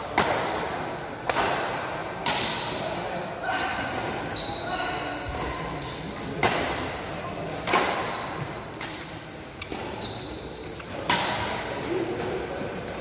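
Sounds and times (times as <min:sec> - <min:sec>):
racket hitting shuttlecock: 0:00.1 - 0:02.8, 0:06.4 - 0:06.9, 0:07.6 - 0:08.1, 0:11.0 - 0:11.6
shoes squeaking on court floor: 0:00.2 - 0:11.8.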